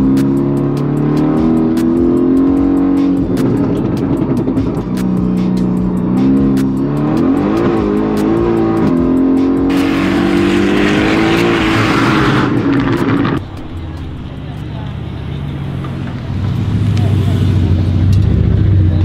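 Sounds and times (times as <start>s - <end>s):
background music with steady beat: 0.0s - 19.0s
car engine revving: 0.0s - 19.0s
loud rushing noise: 9.7s - 13.6s.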